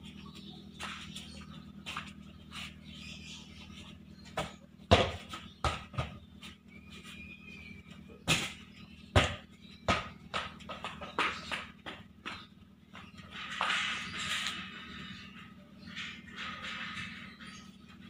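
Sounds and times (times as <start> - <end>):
steady low hum: 0.0 - 18.0
ball bouncing on paving: 4.3 - 6.6, 8.2 - 13.9.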